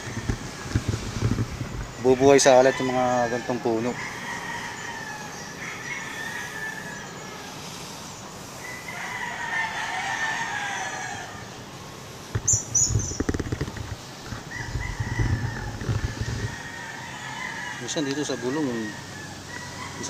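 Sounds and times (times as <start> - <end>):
low thumps and rustles: 0.0 - 2.4, 12.3 - 16.7
rooster crowing: 1.9 - 7.5, 8.6 - 11.6, 14.3 - 20.0.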